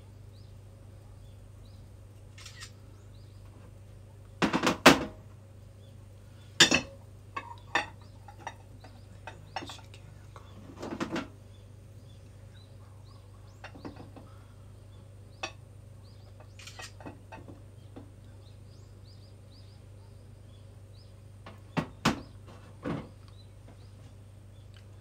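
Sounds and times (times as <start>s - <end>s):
faint bird chirps: 0.0s - 3.5s, 11.4s - 17.0s
steady low hum: 0.0s - 25.0s.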